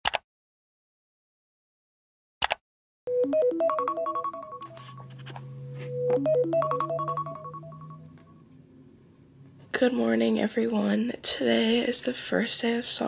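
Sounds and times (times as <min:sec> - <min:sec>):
phone alarm melody: 0:03.1 - 0:08.5.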